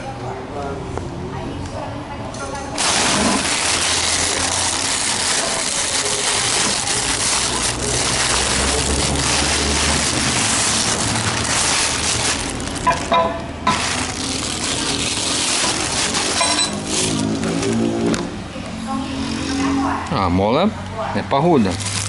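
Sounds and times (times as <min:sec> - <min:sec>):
plastic packaging crinkling: 0:02.8 - 0:18.2, 0:21.6 - 0:22.0.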